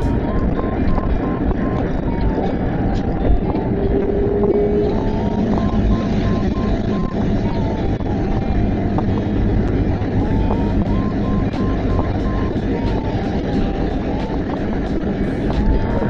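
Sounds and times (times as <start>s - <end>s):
car engine running: 0.0s - 16.0s.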